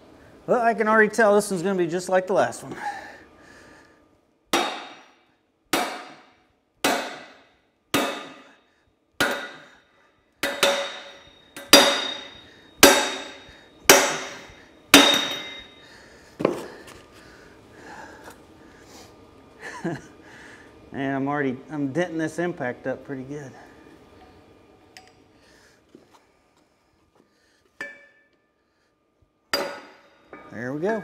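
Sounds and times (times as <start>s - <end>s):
sledgehammer striking metal: 4.5s - 8.5s, 9.2s - 9.8s, 10.4s - 15.8s, 29.6s - 30.6s.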